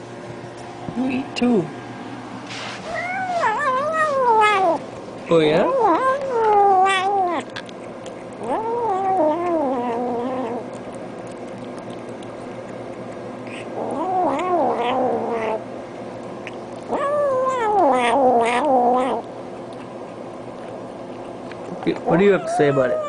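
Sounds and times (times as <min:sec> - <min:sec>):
cat yowling: 0:02.9 - 0:04.8, 0:05.6 - 0:07.6, 0:08.4 - 0:10.7, 0:13.5 - 0:15.6, 0:16.9 - 0:19.3, 0:22.0 - 0:23.0.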